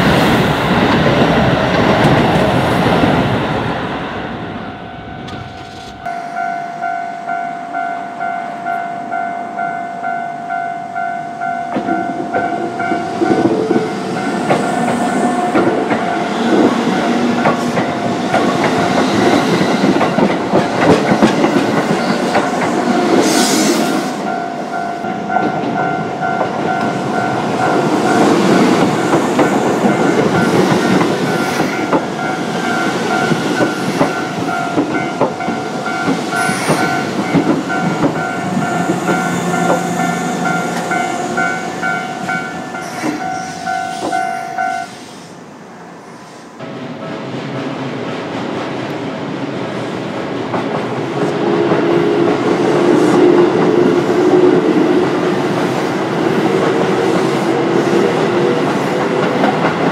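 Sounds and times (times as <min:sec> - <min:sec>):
level crossing warning bell: 0:04.6 - 0:14.6, 0:24.2 - 0:45.0
train wheels clattering over rail joints: 0:13.2 - 0:23.3, 0:28.2 - 0:40.0.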